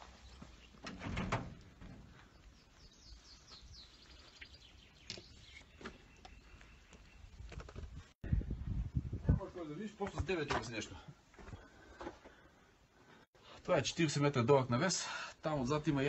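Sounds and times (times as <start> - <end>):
small bird chirping: 2.2 - 8.0.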